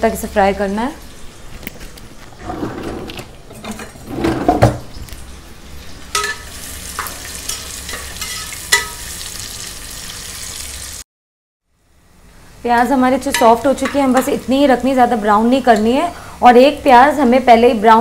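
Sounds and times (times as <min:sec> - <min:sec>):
onions sizzling in hot oil: 0:05.2 - 0:11.0
spoon clinking against pot: 0:06.1 - 0:06.4, 0:07.0 - 0:09.0.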